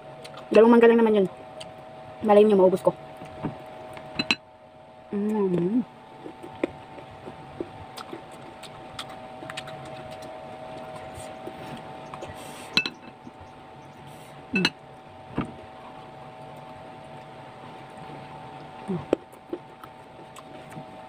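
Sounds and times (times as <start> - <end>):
steady hum: 0.0 - 21.0
fingers clinking ceramic bowls: 4.2 - 4.4, 12.7 - 13.2, 14.6 - 14.8
chewing: 6.2 - 13.4, 16.4 - 21.0.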